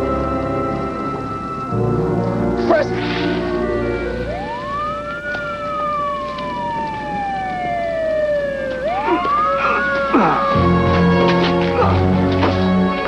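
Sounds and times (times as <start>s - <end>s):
dramatic music: 0.0s - 6.1s, 8.9s - 13.0s
siren wailing: 0.0s - 13.0s.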